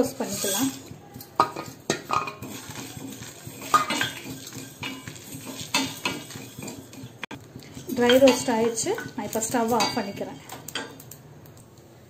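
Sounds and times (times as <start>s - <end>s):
wooden spoon knocking steel pan: 0.0s - 7.2s, 7.9s - 10.9s
seeds scraping and rattling: 2.4s - 6.7s.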